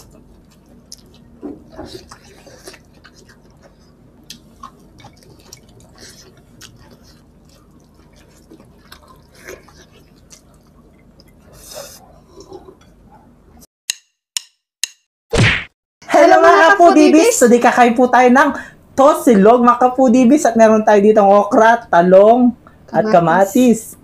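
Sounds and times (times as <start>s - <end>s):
wet chewing and lip smacks: 0.0s - 12.0s.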